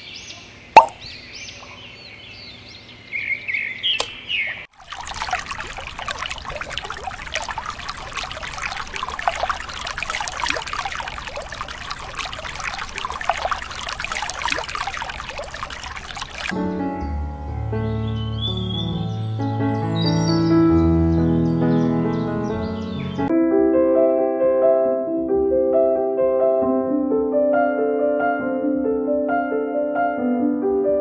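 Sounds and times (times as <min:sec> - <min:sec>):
bird chirps: 0:00.0 - 0:04.7, 0:17.8 - 0:23.3
water trickling into watering can: 0:04.7 - 0:16.6.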